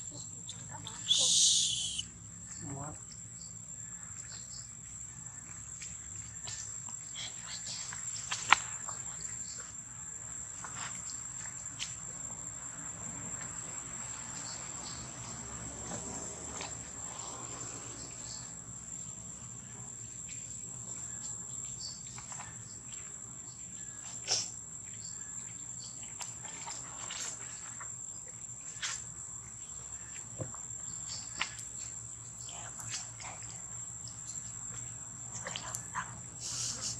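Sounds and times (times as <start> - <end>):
high-pitched insect drone: 1.0 - 2.8.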